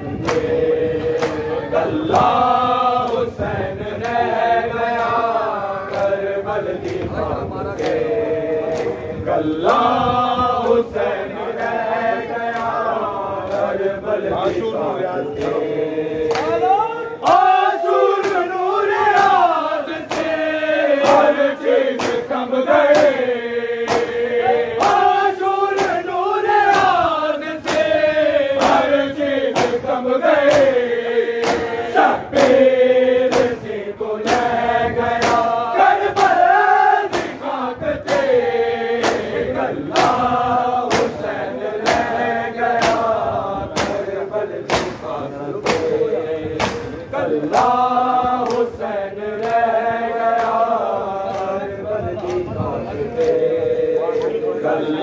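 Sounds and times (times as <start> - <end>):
men chanting together: 0.0 - 55.0
hand slaps on bare chests: 0.2 - 1.5, 5.9 - 6.2, 7.8 - 8.1, 8.7 - 9.0, 15.4 - 28.0, 28.6 - 48.8, 49.4 - 51.6, 53.2 - 53.5.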